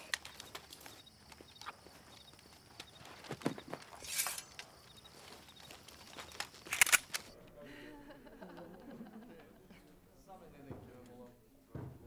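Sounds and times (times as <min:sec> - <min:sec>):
horse hooves on stone: 0:00.0 - 0:07.3
footsteps on stone paving: 0:00.0 - 0:07.4
sharp clicks: 0:05.7 - 0:07.4.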